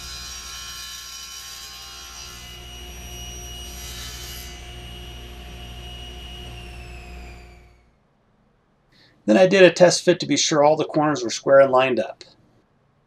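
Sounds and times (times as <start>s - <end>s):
table saw whining: 0.0s - 8.0s.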